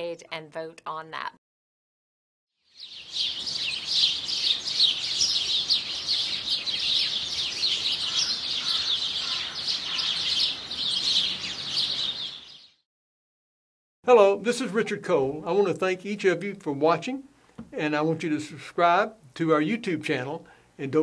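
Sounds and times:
songbirds chirping: 2.6 - 12.8.

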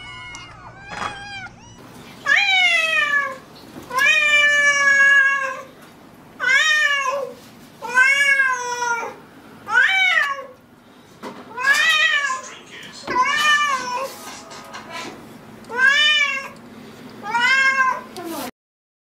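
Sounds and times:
cat meowing loudly: 0.0 - 5.7, 6.4 - 10.5, 15.7 - 16.6, 17.2 - 18.1.

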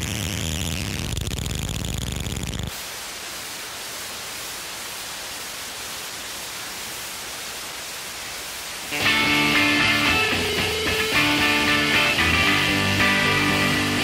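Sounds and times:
static hiss: 0.0 - 14.0
harsh rock din: 8.9 - 14.0.

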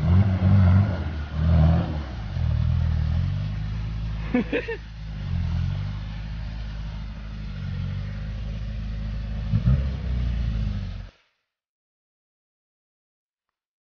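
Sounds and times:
off-road vehicle engine revving: 0.0 - 11.2.

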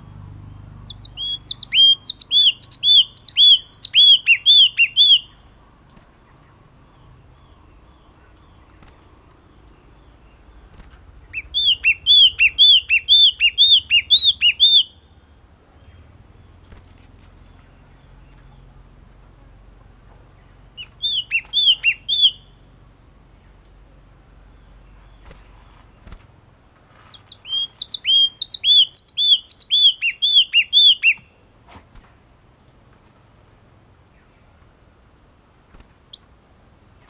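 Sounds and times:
bird singing repeated notes: 0.0 - 5.6, 6.2 - 16.7, 20.4 - 23.6, 27.1 - 31.4.

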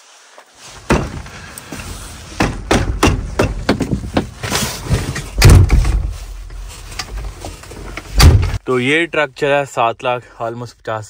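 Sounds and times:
heavy thud: 0.8 - 1.4, 5.4 - 6.1, 8.2 - 8.6
knocks and bumps in truck cab: 0.8 - 1.4, 2.4 - 4.4, 5.3 - 6.1, 8.2 - 8.6.

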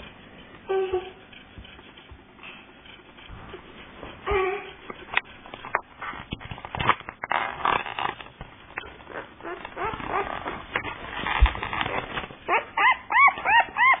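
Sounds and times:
rustling: 0.0 - 14.0
puppy whimpering: 4.2 - 4.8, 9.1 - 10.6, 12.4 - 14.0.

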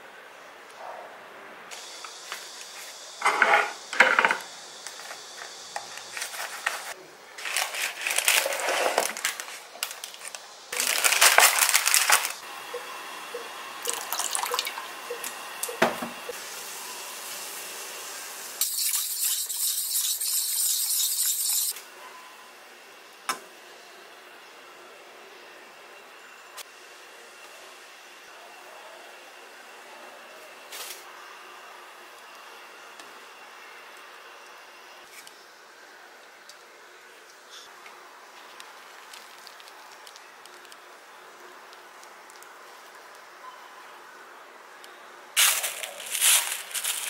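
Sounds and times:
water running from tap: 13.8 - 16.0.

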